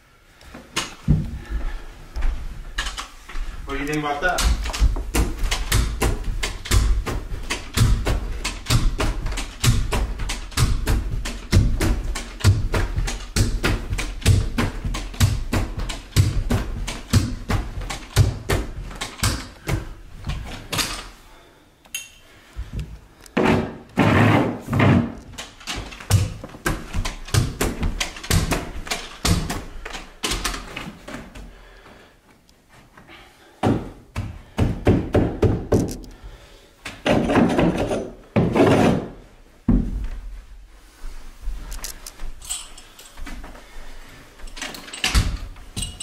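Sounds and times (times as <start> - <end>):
knee kicker thumps: 4.2 - 20.8.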